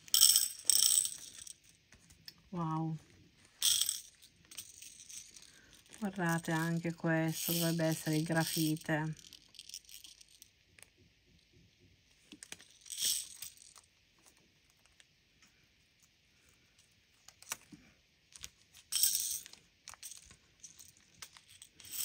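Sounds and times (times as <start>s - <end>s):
glass beads rattling on plastic: 0.0s - 1.8s, 3.6s - 10.6s, 12.4s - 13.9s, 18.4s - 22.0s.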